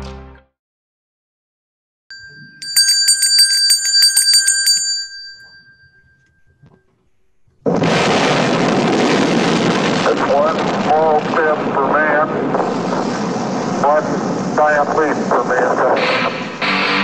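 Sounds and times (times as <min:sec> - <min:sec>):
bell ringing rapidly: 0:02.1 - 0:06.0
rocket engines roaring at liftoff: 0:07.6 - 0:16.8.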